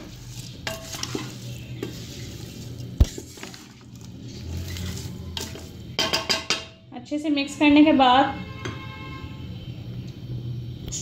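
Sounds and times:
spatula stirring vegetables in pot: 0.0 - 6.8
spatula knocking against metal pot: 5.9 - 6.8.

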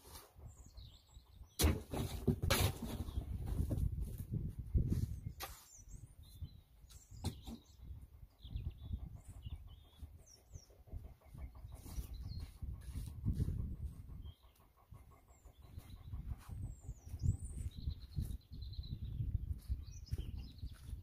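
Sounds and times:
small birds chirping: 0.0 - 21.0
shovel scraping stony ground: 1.6 - 3.1.

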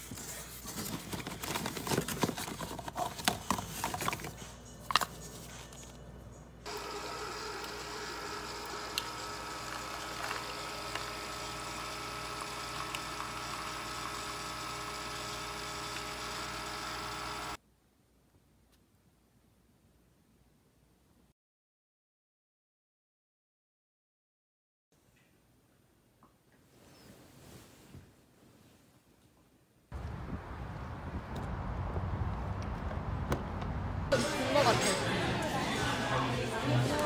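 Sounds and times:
coffee maker pump hum: 6.7 - 17.6.

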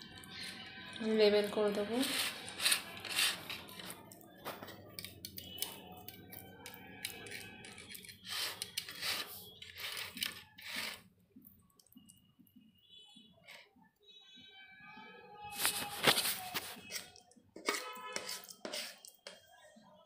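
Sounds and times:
spatula scraping in metal tin: 1.4 - 4.1, 6.7 - 11.1, 15.7 - 19.3.

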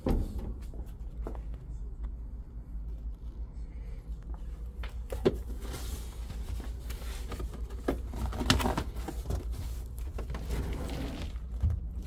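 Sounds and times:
steady low hum: 0.0 - 12.0
floor mats rustling: 4.3 - 12.0.

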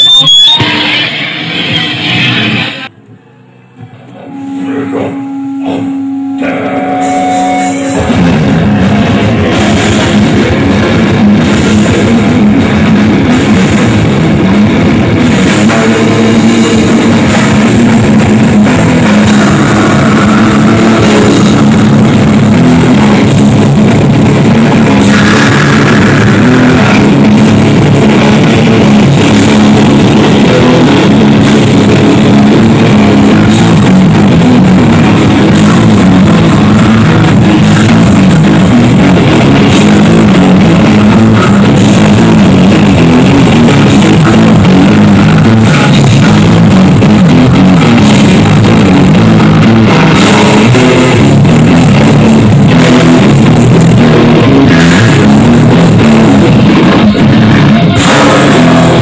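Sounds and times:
death metal band playing: 0.0 - 59.0.

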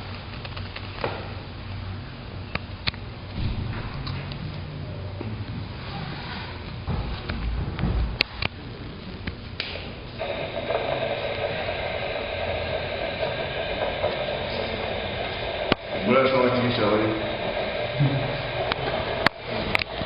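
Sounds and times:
speaker static hiss: 8.3 - 20.0.

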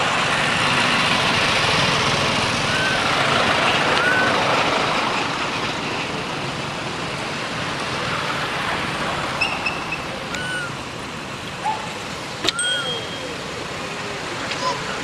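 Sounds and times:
road traffic passing: 0.0 - 15.0
short high squeaks: 12.4 - 13.6.

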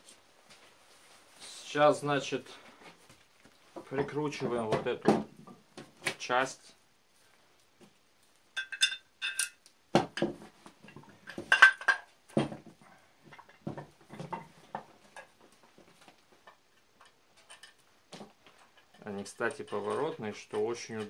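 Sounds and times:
metal vise parts clinking: 8.6 - 9.6, 18.8 - 21.0.

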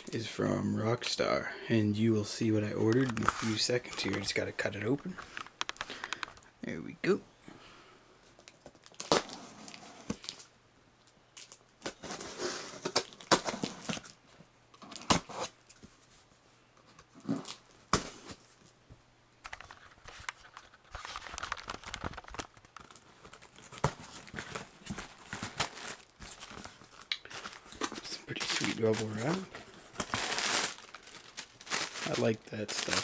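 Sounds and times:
cardboard rubbing and crinkling: 19.7 - 33.0.

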